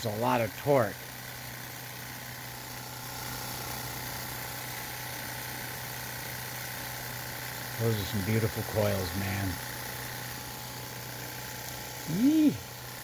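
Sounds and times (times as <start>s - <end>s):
motor humming: 0.0s - 13.0s.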